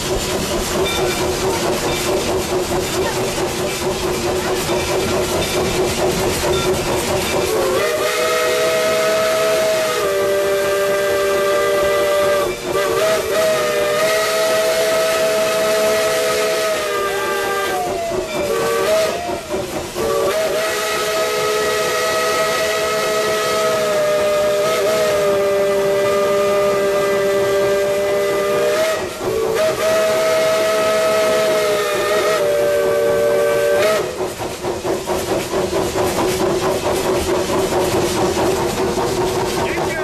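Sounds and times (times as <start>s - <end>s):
steam locomotive chime whistle: 6.4s - 34.2s.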